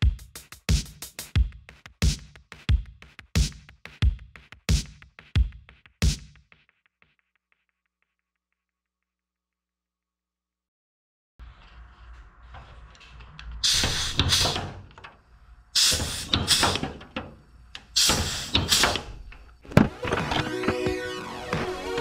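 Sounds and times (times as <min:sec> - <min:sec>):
pneumatic tool hissing: 0:13.6 - 0:14.9, 0:15.8 - 0:17.2, 0:17.8 - 0:19.2
handling noise: 0:19.3 - 0:22.0.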